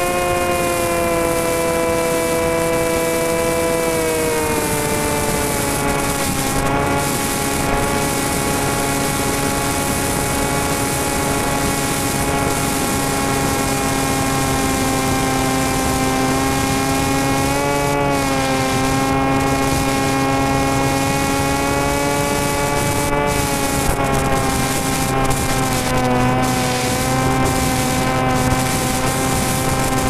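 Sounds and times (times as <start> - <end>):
propeller motor drone: 0.0 - 30.0.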